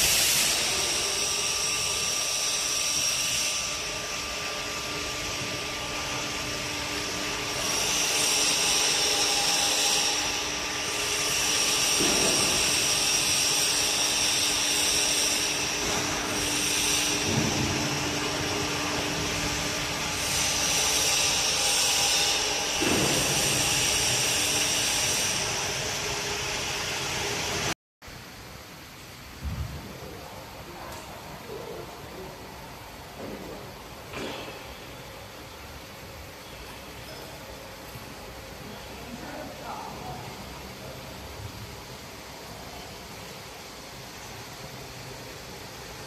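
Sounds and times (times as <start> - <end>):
lift motor humming and whining: 0.0 - 28.3.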